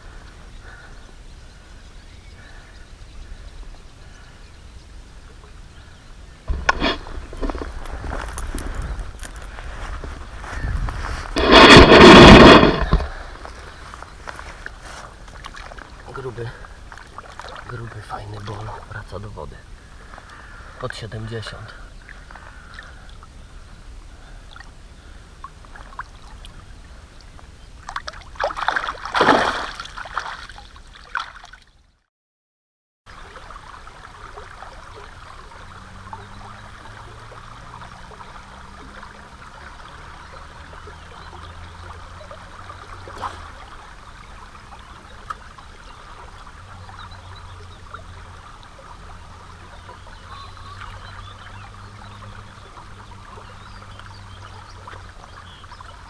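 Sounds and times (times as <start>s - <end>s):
river water running: 0.0s - 31.9s, 33.1s - 56.0s
water trickling around stones: 5.3s - 31.9s, 33.1s - 56.0s
fish splashing in water: 27.8s - 31.6s, 33.1s - 56.0s.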